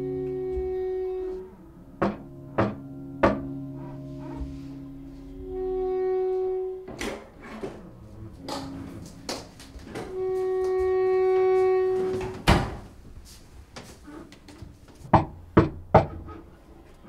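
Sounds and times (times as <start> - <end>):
slow instrumental music: 0.0 - 14.0
sharp knocks: 2.0 - 3.6, 15.0 - 16.3.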